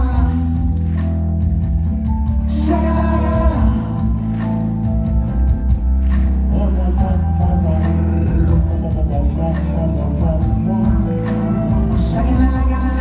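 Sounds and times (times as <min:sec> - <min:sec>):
person singing: 0:00.0 - 0:01.0, 0:02.3 - 0:04.4, 0:06.4 - 0:13.0
live band music: 0:00.0 - 0:13.0.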